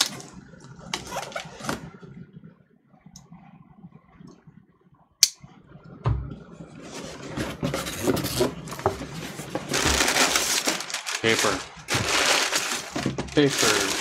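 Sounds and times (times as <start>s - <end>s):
paper and cardboard box rustling: 6.9s - 14.0s.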